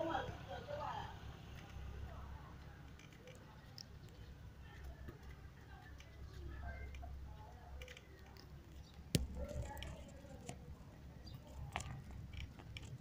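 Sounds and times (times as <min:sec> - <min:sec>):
wheelchair rolling on pavement: 0:04.7 - 0:13.0.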